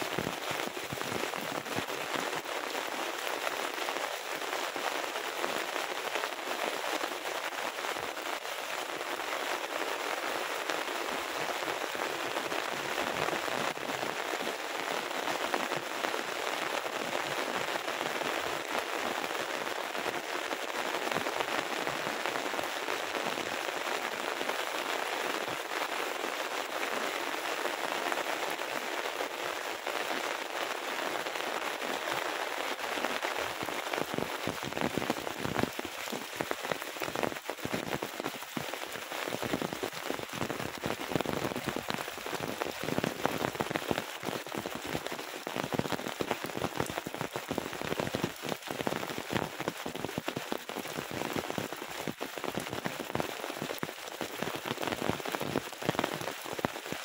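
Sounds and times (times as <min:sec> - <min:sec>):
raindrop hits: 0:00.0 - 0:04.8, 0:30.7 - 0:57.0
heavy rain: 0:00.0 - 0:57.0.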